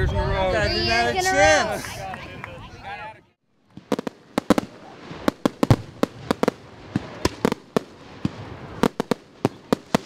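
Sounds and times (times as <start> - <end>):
fireworks bangs and crackles: 3.6 - 10.0.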